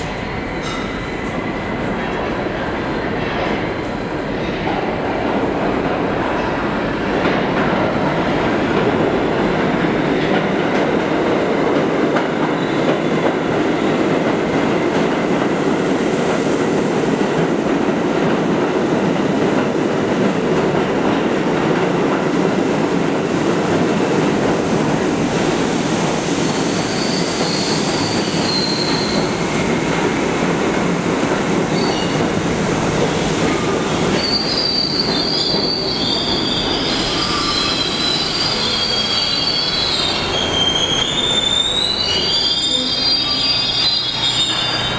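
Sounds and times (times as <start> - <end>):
subway train rumbling on rails: 0.0 - 44.9
high-pitched wheel squeals: 34.2 - 44.9.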